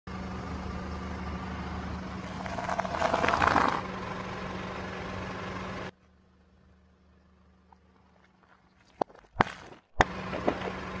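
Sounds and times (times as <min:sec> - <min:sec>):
car engine idling: 0:00.1 - 0:08.7.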